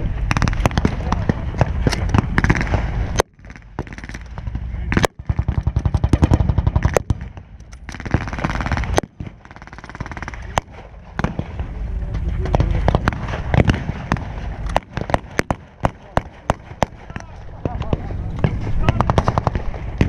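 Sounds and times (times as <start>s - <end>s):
rifle shots: 0.1s - 11.8s, 12.4s - 20.0s
machine-gun burst: 2.1s - 4.3s, 4.9s - 7.2s, 7.9s - 11.7s.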